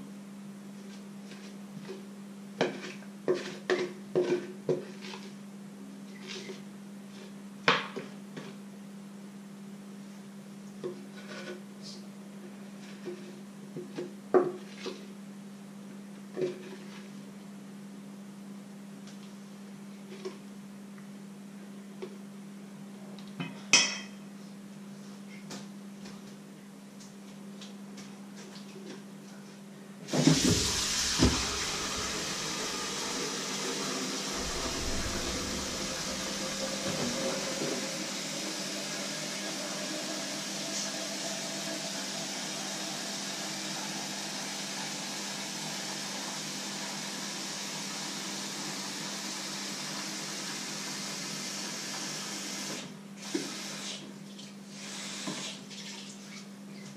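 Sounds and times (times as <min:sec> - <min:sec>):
steady low hum: 0:29.8 - 0:38.8
loud rushing noise: 0:30.4 - 0:38.4.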